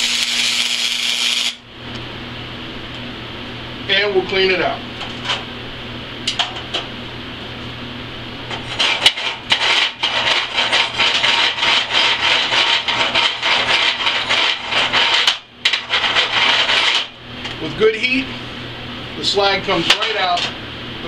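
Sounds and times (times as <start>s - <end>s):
slag pick scraping weld: 0.0s - 1.6s, 8.5s - 17.2s.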